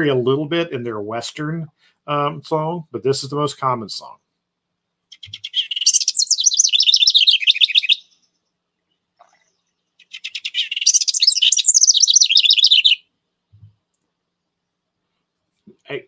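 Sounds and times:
wren singing: 0:05.1 - 0:09.4, 0:10.0 - 0:13.0.

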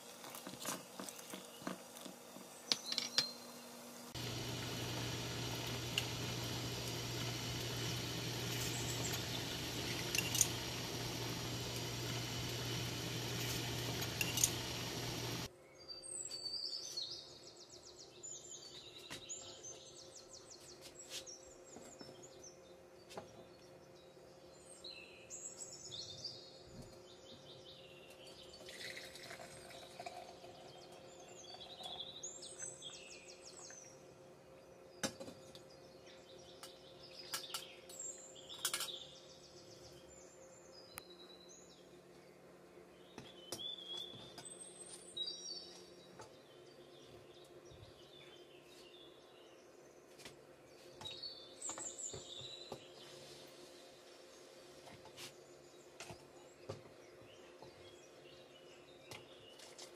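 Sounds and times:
tea boiling in pan: 0:00.0 - 0:03.1, 0:03.9 - 0:15.5, 0:28.6 - 0:32.4
steady hiss with low hum: 0:00.0 - 0:59.9.

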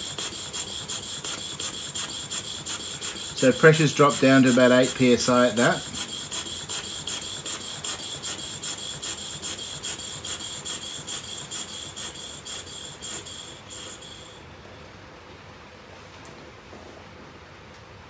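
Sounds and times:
steam engine chuffing: 0:00.0 - 0:14.4
faint high whistle: 0:08.0 - 0:14.5.

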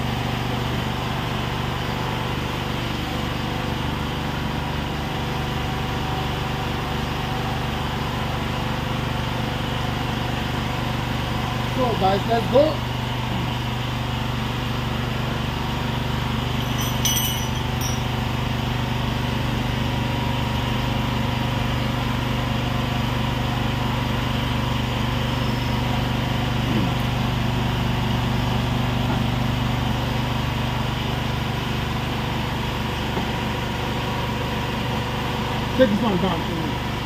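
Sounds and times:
engine droning: 0:09.8 - 0:37.0.

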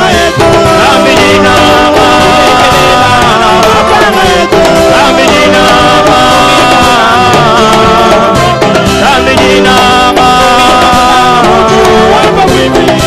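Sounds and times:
band with drum kit: 0:00.0 - 0:13.0
male group singing gospel: 0:00.0 - 0:13.0.

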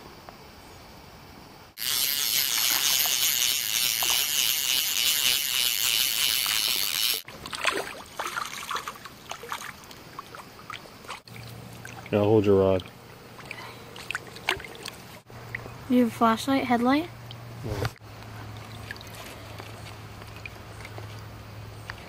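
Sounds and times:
stream water rushing: 0:07.2 - 0:15.6
small splashes: 0:07.2 - 0:15.7, 0:18.2 - 0:22.0.

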